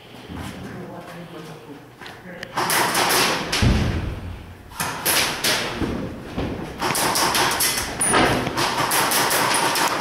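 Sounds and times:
thuds and knocks: 3.5 - 4.4, 5.2 - 6.9.

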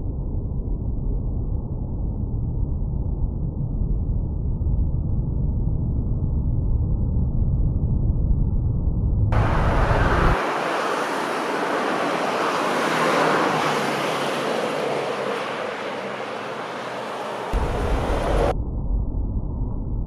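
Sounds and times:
muffled deep rumble: 0.0 - 10.4, 17.5 - 20.0
road traffic passing: 9.4 - 18.5.

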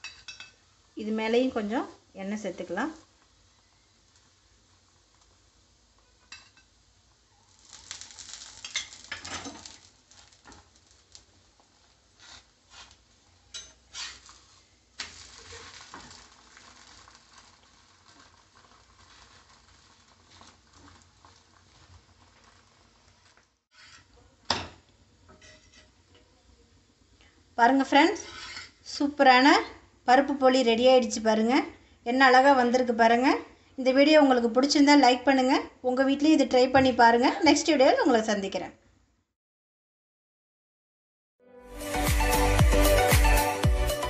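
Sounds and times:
frying in oil sizzling: 0.0 - 26.1
metal utensils scraping a pan: 12.2 - 16.2, 23.7 - 24.1, 25.3 - 26.0, 28.2 - 28.8.

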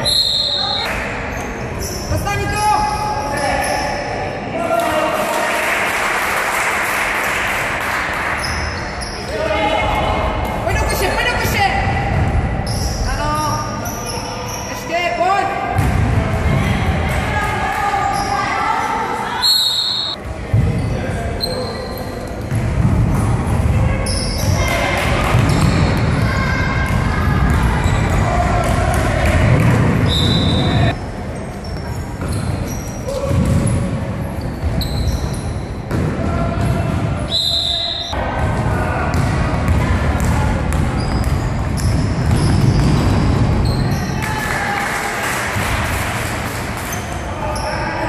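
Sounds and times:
shouting voices echoing: 23.9 - 31.0
basketball bouncing: 33.2 - 33.9, 38.2 - 43.8.

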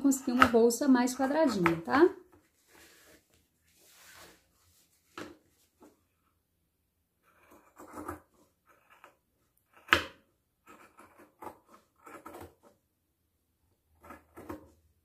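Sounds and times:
cloth rustling: 2.4 - 6.0.

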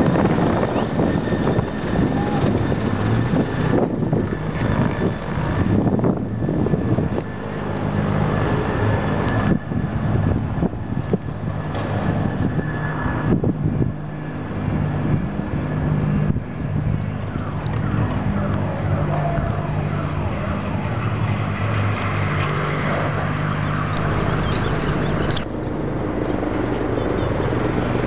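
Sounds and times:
helicopter turbine whine: 0.0 - 28.0
low engine drone: 0.0 - 28.0.

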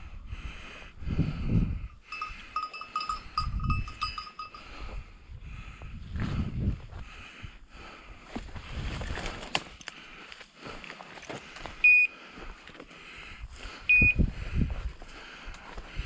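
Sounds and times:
footsteps through dry scrub: 8.2 - 16.0.

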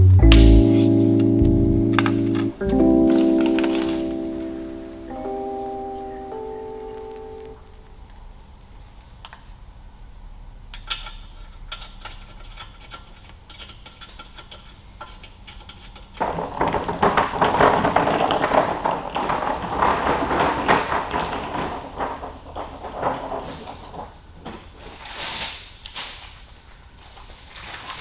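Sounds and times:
tool cart rattling on concrete: 15.9 - 26.5, 27.4 - 28.0.

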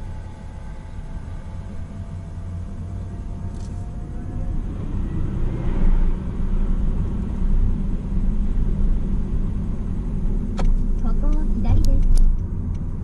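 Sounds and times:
car engine and tyre rumble: 0.0 - 13.0
sharp click: 10.6 - 12.8.

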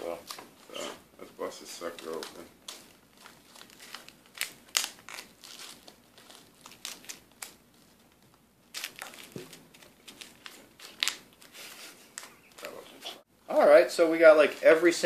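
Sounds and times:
candy packets crinkling: 1.8 - 12.8.

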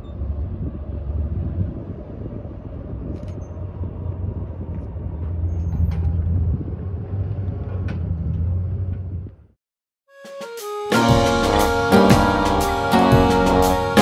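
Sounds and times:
diesel engine running: 0.0 - 9.5.

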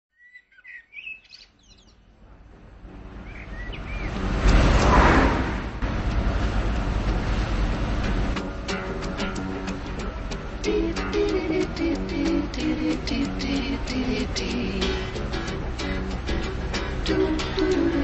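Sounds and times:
birds chirping: 0.1 - 4.7
car engine passing: 2.1 - 18.0.

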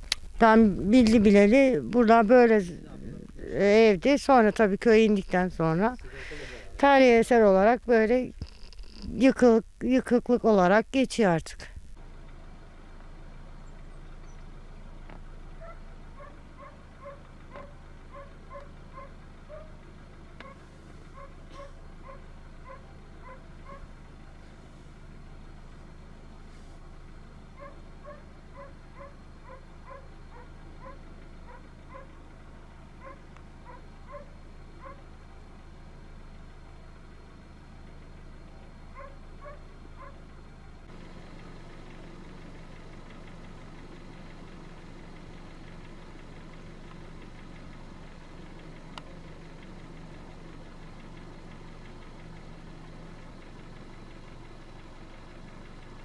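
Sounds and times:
steady low rumble: 0.0 - 12.1
low engine hum: 0.0 - 56.0.

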